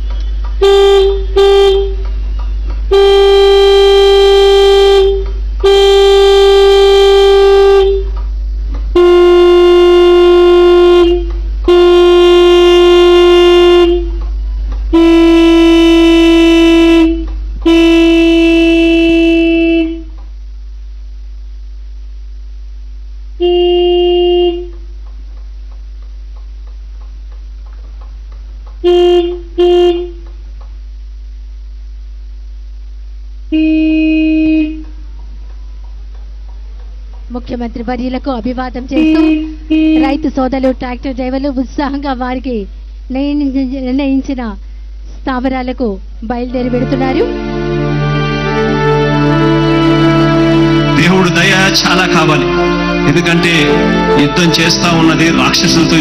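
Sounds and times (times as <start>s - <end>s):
tractor horns honking: 0.0s - 8.2s, 8.9s - 14.3s, 14.9s - 20.2s, 23.4s - 24.9s, 28.8s - 30.4s, 33.5s - 35.8s, 38.8s - 41.0s, 46.5s - 56.0s
faint background music: 45.4s - 56.0s.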